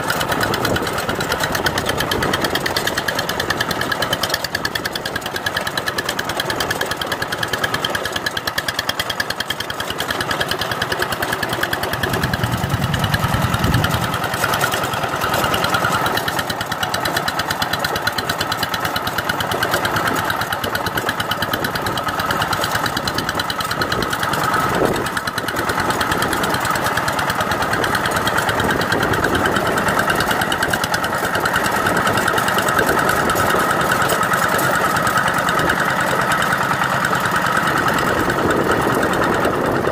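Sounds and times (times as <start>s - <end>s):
diesel engine chugging: 0.0s - 39.9s
deep rumble: 11.9s - 14.4s.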